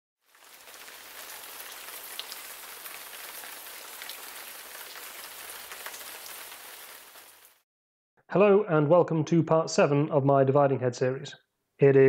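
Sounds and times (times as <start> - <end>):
crackling hiss with small ticks: 0.3 - 7.5.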